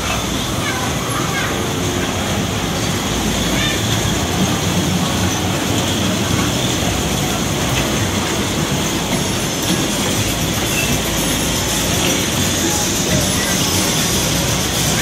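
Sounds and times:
carousel rolling rumble: 0.0 - 15.0.

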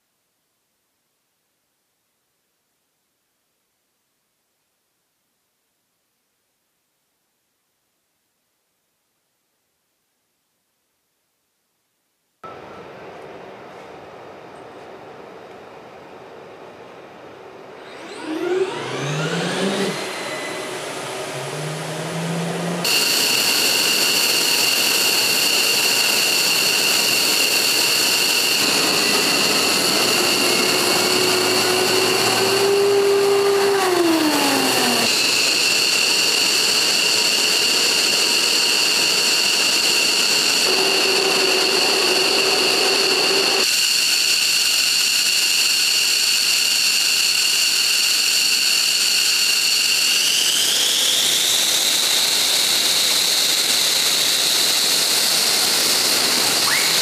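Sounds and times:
jet engine turbine whine: 12.5 - 57.0
lower engine tone: 17.7 - 35.7.

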